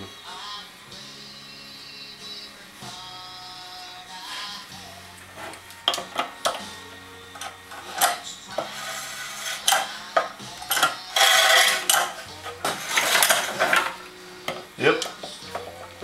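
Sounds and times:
metal rattling and scraping: 0:05.4 - 0:06.6, 0:07.3 - 0:16.0.

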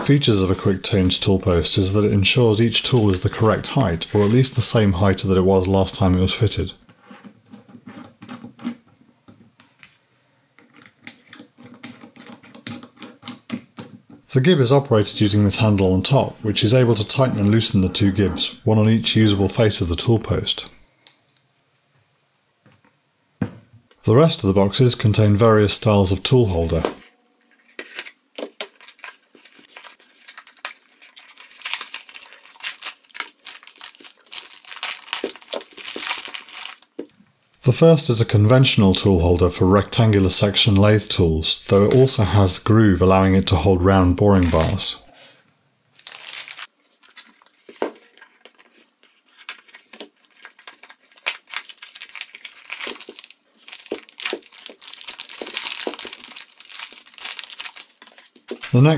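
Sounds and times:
paper wrapping crinkling and tearing: 0:02.2 - 0:04.8, 0:27.8 - 0:37.0, 0:44.1 - 0:45.0, 0:46.0 - 0:58.9
plastic bag crinkling: 0:28.6 - 0:37.1, 0:44.3 - 0:44.9, 0:46.0 - 0:58.7.

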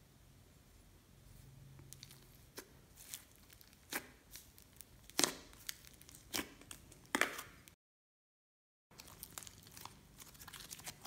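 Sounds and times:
slime crackling and popping: 0:01.9 - 0:07.5, 0:09.0 - 0:11.0.

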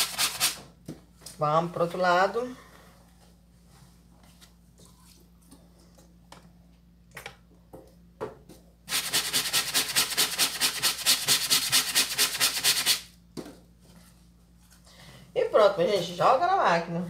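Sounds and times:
plastic brush scrubbing wet fabric: 0:08.9 - 0:13.0.

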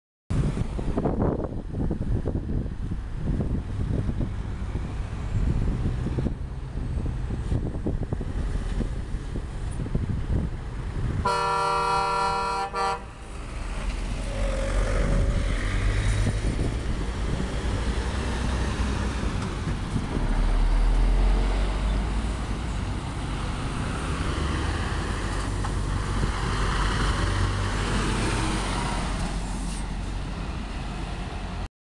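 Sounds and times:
heavy truck passing: 0:00.3 - 0:31.7
diesel truck driving past: 0:03.1 - 0:31.7
truck air horn: 0:11.2 - 0:13.3.

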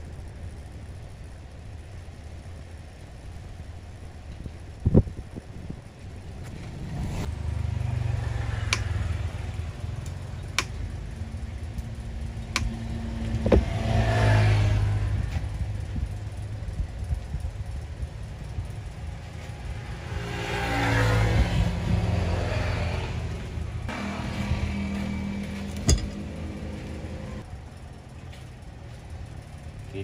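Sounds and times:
vehicle engines passing: 0:04.2 - 0:30.0
sharp clicks: 0:10.0 - 0:10.9, 0:11.7 - 0:13.4.

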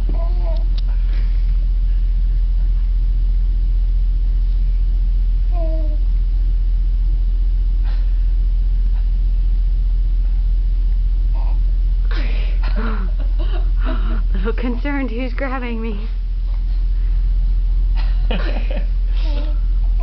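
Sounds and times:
steady low hum: 0:00.0 - 0:20.0
baby cooing: 0:00.1 - 0:00.6, 0:05.5 - 0:06.0.

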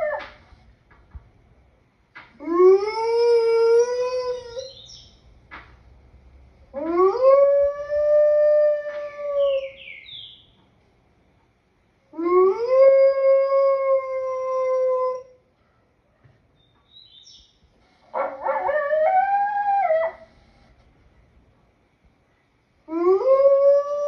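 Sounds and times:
wolf howling: 0:00.0 - 0:00.4, 0:02.4 - 0:04.8, 0:06.7 - 0:09.8, 0:12.1 - 0:15.4, 0:18.2 - 0:20.4, 0:22.9 - 0:24.0.

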